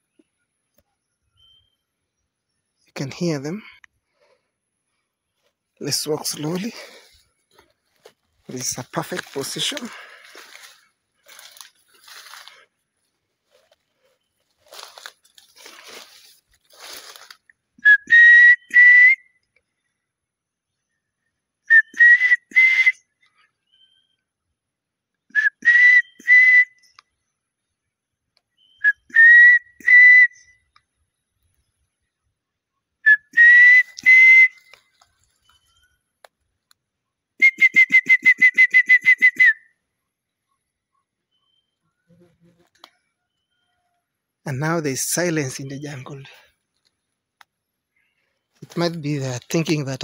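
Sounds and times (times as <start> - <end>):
man whistling bird calls: 1.0 - 2.2, 17.8 - 19.6, 21.6 - 24.2, 25.2 - 27.3, 28.5 - 30.8, 33.0 - 36.0, 37.4 - 39.8
trilled whistle: 17.8 - 19.4, 21.7 - 23.1, 25.3 - 27.0, 28.6 - 30.7, 33.0 - 36.0, 37.4 - 39.8.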